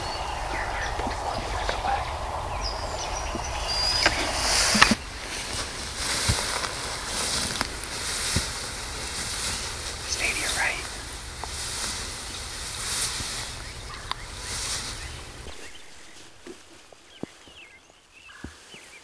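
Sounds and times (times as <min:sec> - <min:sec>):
grass and clothing rustling: 0:00.0 - 0:19.0.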